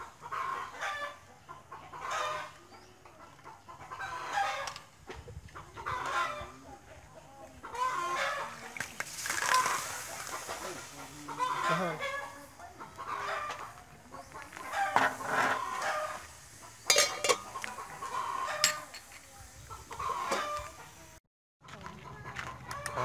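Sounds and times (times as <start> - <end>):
chickens clucking: 0.0 - 23.0
water poured into pot: 8.8 - 10.4
clinks against metal pot: 16.9 - 17.7, 18.6 - 19.2.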